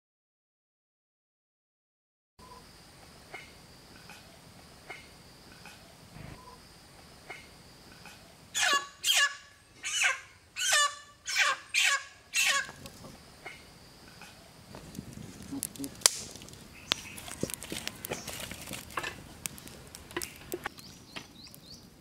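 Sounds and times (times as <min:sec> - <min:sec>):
faint chirps: 0:02.4 - 0:14.6
chicken squawking: 0:08.6 - 0:13.6.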